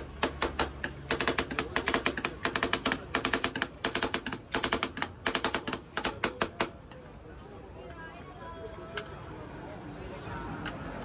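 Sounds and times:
rapid sharp tapping clicks: 0:00.2 - 0:06.7.

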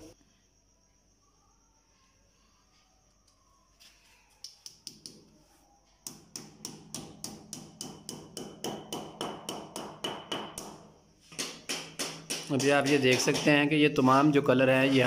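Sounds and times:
hammer tapping: 0:06.1 - 0:13.8.

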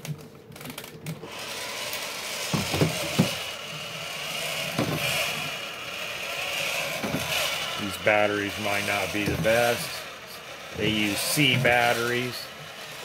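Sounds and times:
toy motor whirring: 0:00.5 - 0:13.0.

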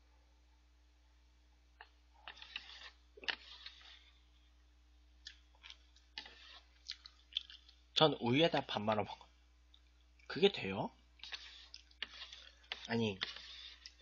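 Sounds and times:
slurping noodles: 0:02.2 - 0:04.1, 0:06.2 - 0:07.7, 0:11.2 - 0:14.0
wet chewing and mouth clicks: 0:05.2 - 0:07.8, 0:11.2 - 0:14.0.

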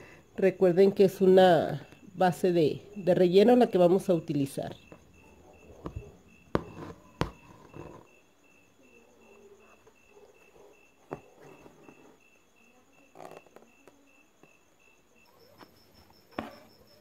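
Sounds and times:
faint insect chirping: 0:00.0 - 0:17.0.

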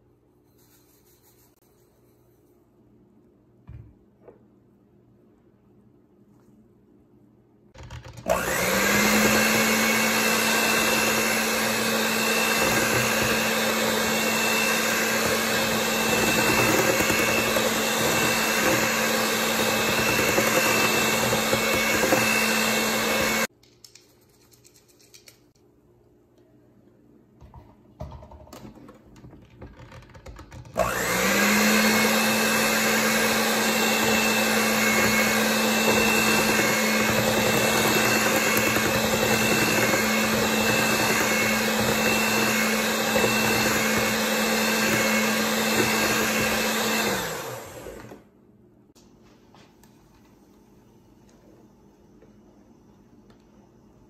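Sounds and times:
electric hand mixer whining: 0:08.1 - 0:23.5, 0:30.7 - 0:48.3.

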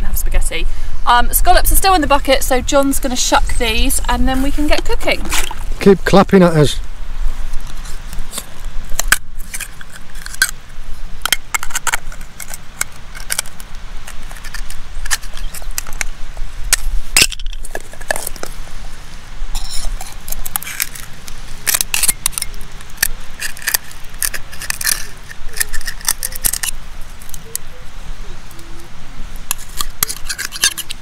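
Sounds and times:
knife scraping on shells: 0:07.7 - 0:10.6, 0:11.2 - 0:16.1, 0:19.6 - 0:27.4, 0:29.5 - 0:31.0.

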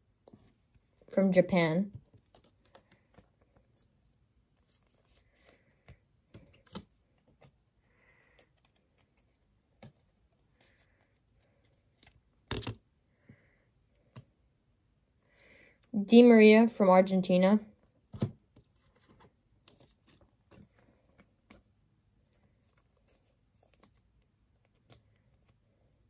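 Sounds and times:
plastic card sleeves rustling: 0:02.0 - 0:07.6.

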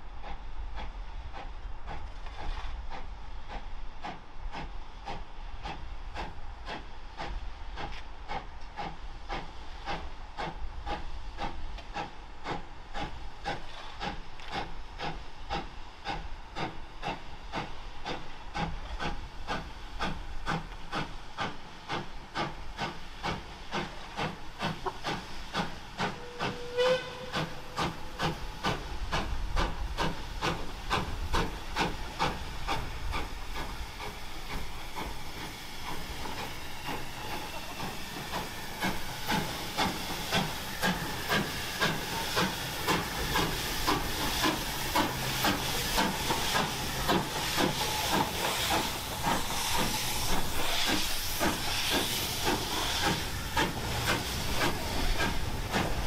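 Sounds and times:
steam locomotive exhaust beats: 0:00.0 - 0:56.0
hiss of escaping steam: 0:00.2 - 0:56.0
steam whistle: 0:26.1 - 0:27.8.

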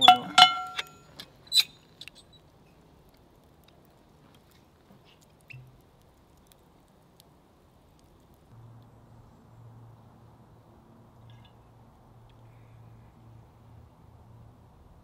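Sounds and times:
embers crackling: 0:00.0 - 0:14.4.

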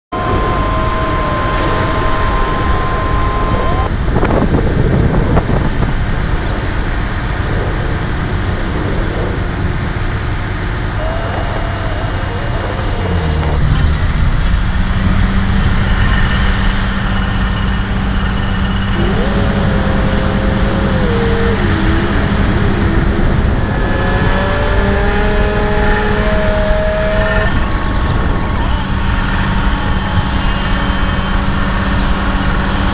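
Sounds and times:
diesel engine drone: 0:00.0 - 0:32.9
machinery tones sliding: 0:00.1 - 0:03.9, 0:07.2 - 0:14.2, 0:18.8 - 0:32.9.

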